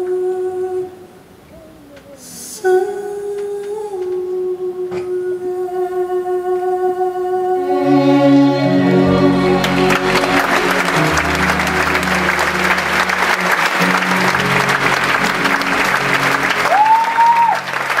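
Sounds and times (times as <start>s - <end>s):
audience applauding and cheering: 9.1s - 18.0s.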